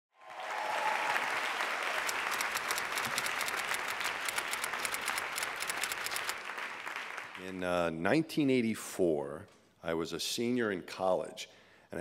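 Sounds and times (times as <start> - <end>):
audience applause: 0.1 - 7.5.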